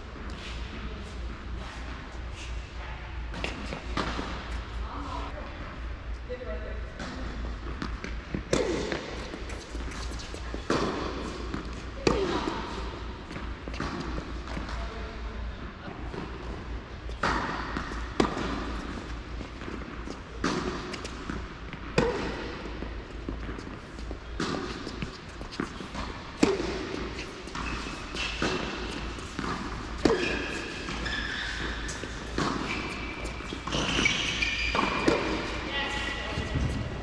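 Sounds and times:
tennis ball bouncing: 7.0s - 14.8s, 16.1s - 36.8s
tennis racket hitting ball: 7.0s - 14.8s, 17.1s - 36.8s
shoe squeaks on court: 27.2s - 28.5s, 29.3s - 35.6s.

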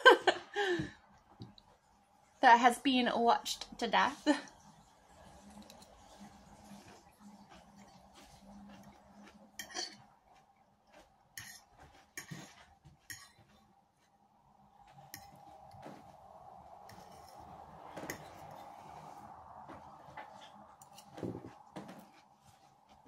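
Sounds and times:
fork clinking and scraping on plate: 9.6s - 10.1s, 11.4s - 13.6s, 15.1s - 15.5s, 18.0s - 18.5s.

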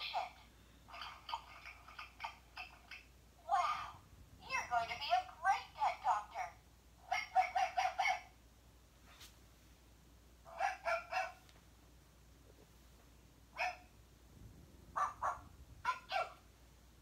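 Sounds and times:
toy puppy barking: 4.5s - 8.4s, 10.5s - 11.4s, 13.6s - 13.9s, 15.0s - 16.5s.

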